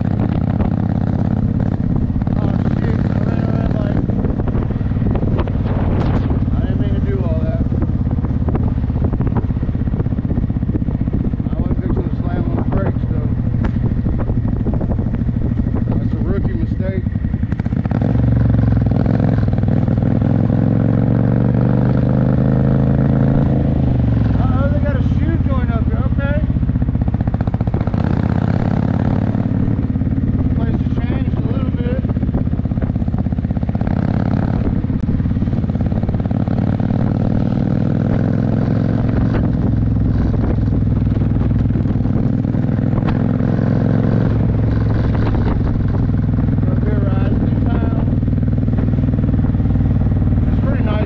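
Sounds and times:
motorcycle engine accelerating: 0.0 - 51.0.

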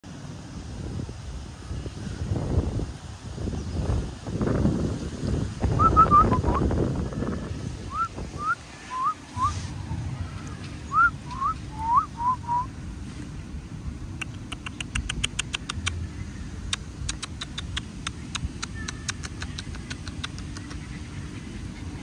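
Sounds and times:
sharp clicks: 14.2 - 16.0, 16.6 - 20.9.

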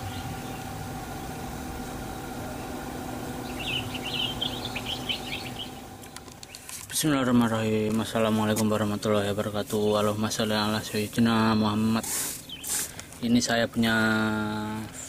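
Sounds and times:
engine idling hum: 0.0 - 15.0
quick bird chirps: 3.4 - 6.7, 12.2 - 13.0.

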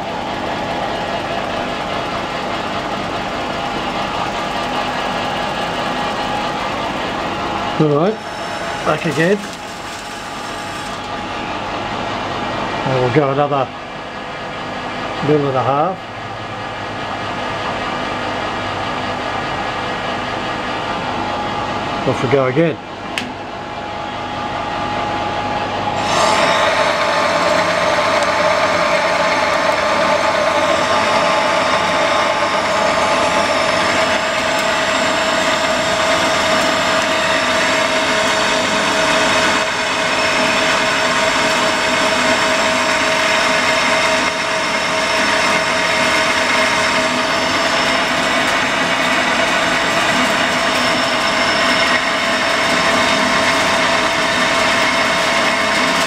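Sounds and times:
lathe cutting metal: 0.0 - 13.4, 25.6 - 56.0.

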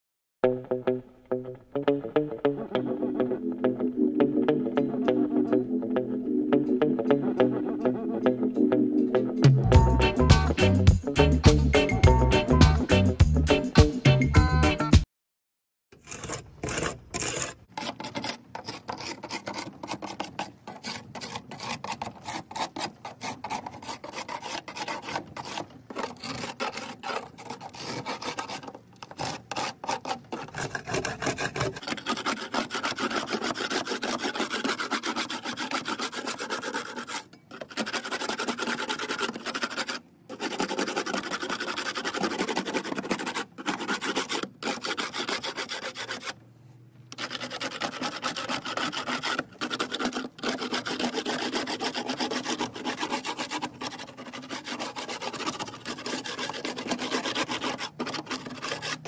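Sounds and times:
scraper rasping paint off wood: 16.0 - 46.4, 47.1 - 59.0.

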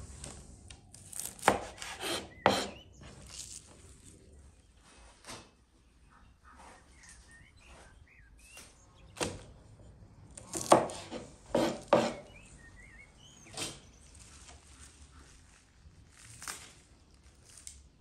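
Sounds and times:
knife chopping on wooden board: 1.2 - 2.8, 10.4 - 12.3
faint bird chirps: 5.8 - 9.3, 12.1 - 15.4.

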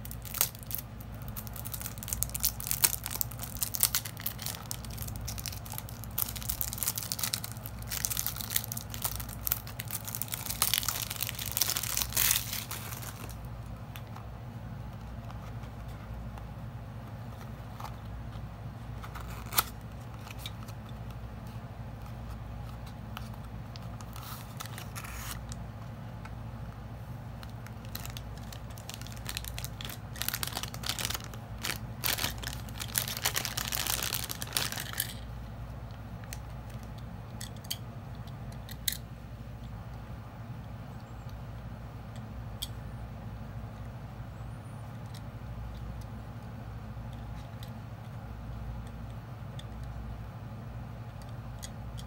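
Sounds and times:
plastic bag crinkling and tearing: 0.0 - 13.4, 24.0 - 25.5, 27.4 - 35.2
steady low hum: 0.0 - 52.0.

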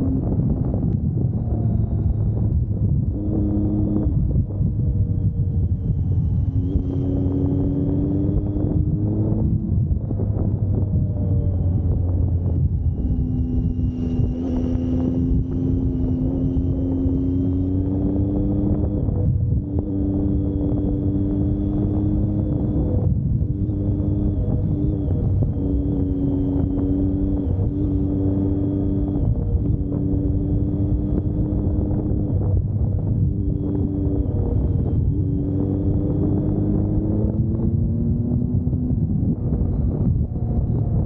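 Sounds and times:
vehicle engine running: 0.0 - 41.0
wind rumble on microphone: 0.0 - 41.0.

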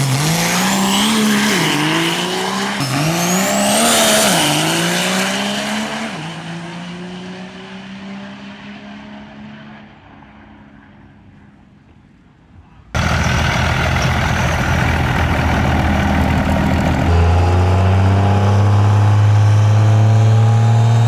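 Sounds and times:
diesel pickup accelerating: 13.0 - 21.0
high turbo whistle: 16.8 - 20.0.

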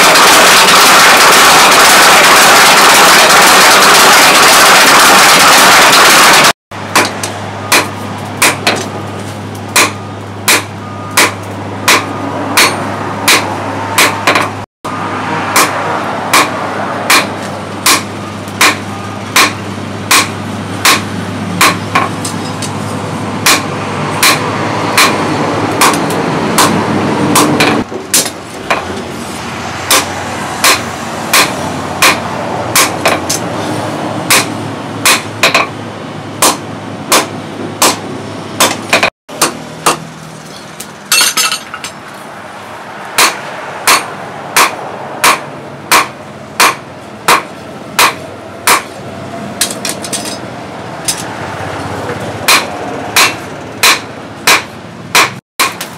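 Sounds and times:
hammer striking hot steel on anvil: 6.9 - 9.0, 9.6 - 14.6, 15.5 - 22.8, 23.4 - 28.9, 29.9 - 33.4, 34.3 - 35.7, 36.4 - 42.0, 43.2 - 49.0, 52.1 - 55.9.

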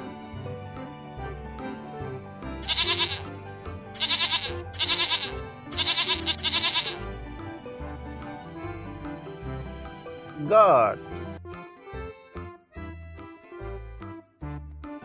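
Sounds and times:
background music: 0.0 - 15.0
goat bleating: 2.6 - 3.3, 4.0 - 7.1.

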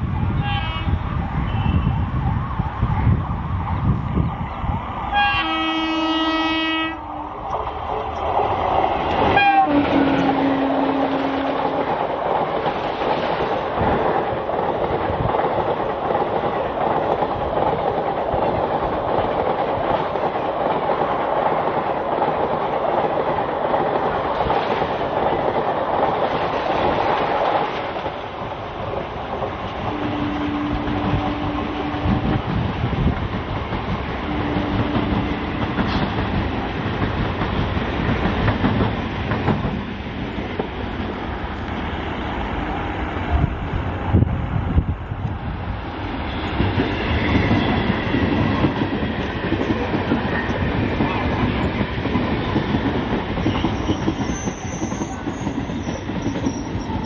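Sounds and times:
locomotive horn: 0.4 - 2.0, 5.1 - 7.3, 9.3 - 11.8, 29.8 - 32.4, 34.3 - 35.5
train horn short notes: 5.1 - 7.2, 9.4 - 11.8, 29.9 - 32.3, 34.3 - 35.4
train wheels clacking over rail joints: 8.0 - 41.8, 46.1 - 57.0.

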